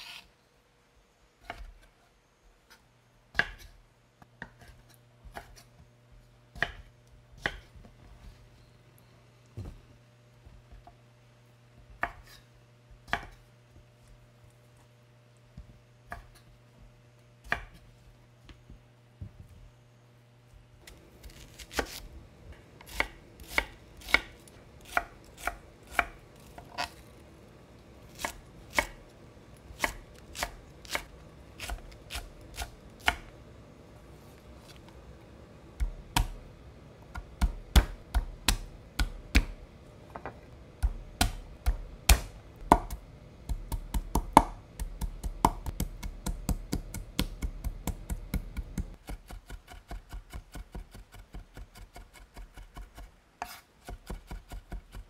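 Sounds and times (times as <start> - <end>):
knife chopping on cutting board: 3.3 - 3.8, 4.4 - 5.7, 6.5 - 7.7, 11.9 - 12.4, 13.0 - 13.4, 17.4 - 17.9, 21.2 - 22.0, 22.8 - 27.0, 28.1 - 29.0, 29.7 - 33.3, 35.8 - 36.4, 37.1 - 39.6, 40.2 - 55.0.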